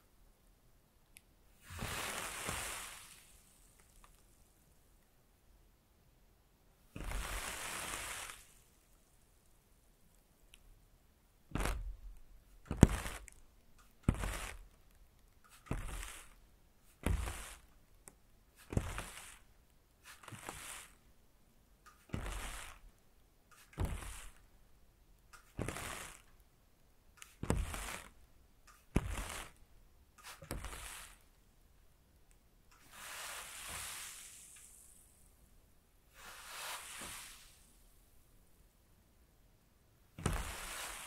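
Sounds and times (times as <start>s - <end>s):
water spray bursts: 1.6s - 3.7s, 7.0s - 8.7s, 30.2s - 31.2s, 32.8s - 35.1s, 36.1s - 37.7s, 40.2s - 41.0s.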